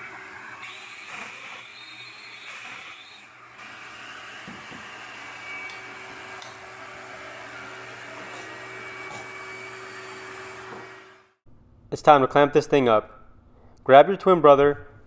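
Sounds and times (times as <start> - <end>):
dust extractor whirring: 0.0 - 11.4.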